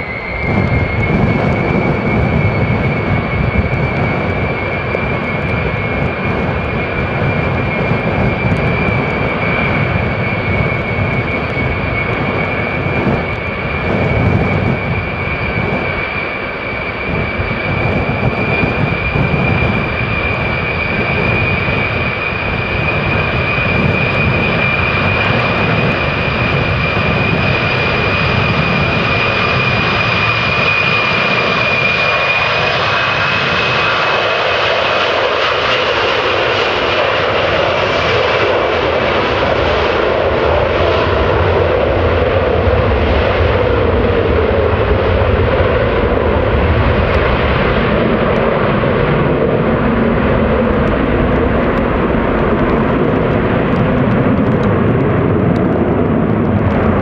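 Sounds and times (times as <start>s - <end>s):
jet engines running with whine: 0.0s - 57.0s.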